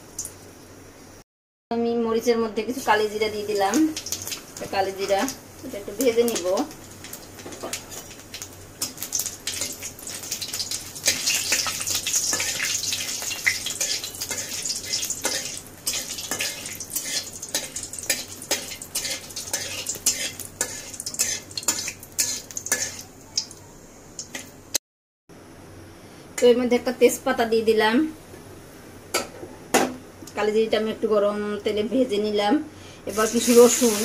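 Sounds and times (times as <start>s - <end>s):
chillies sizzling in oil: 2.6s - 24.6s, 33.1s - 34.0s
spatula scraping metal pan: 13.8s - 23.0s.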